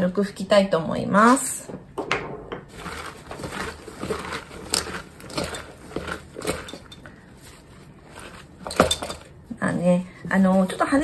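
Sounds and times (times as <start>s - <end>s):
paper towel rustling and crinkling: 2.7s - 8.8s.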